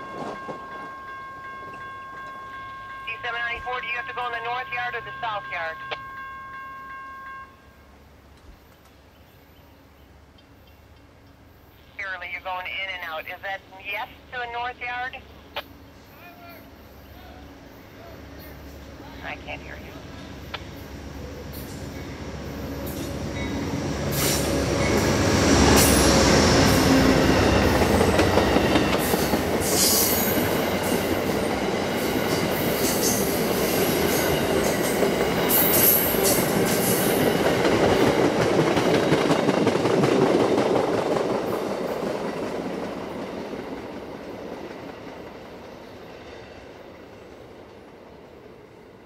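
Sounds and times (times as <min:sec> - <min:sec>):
train wheels on rails: 0:00.0 - 0:03.8, 0:20.0 - 0:49.0
sharp clatters of train: 0:00.0 - 0:07.7, 0:10.3 - 0:11.9, 0:15.5 - 0:49.0
diesel locomotive passing: 0:00.0 - 0:49.0.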